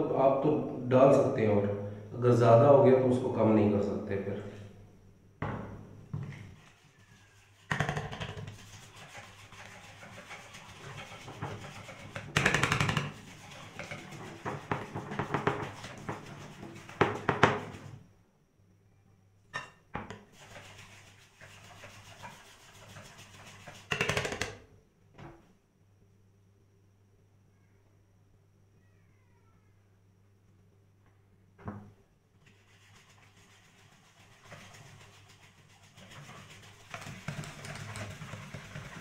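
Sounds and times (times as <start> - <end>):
fork beating batter in metal bowl: 6.4 - 18.0, 20.1 - 24.6, 32.4 - 39.0.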